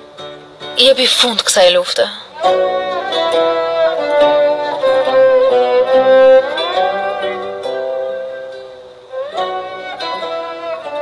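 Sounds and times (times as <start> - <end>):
plucked strings: 0.0 - 11.0
violin melody: 2.3 - 11.0.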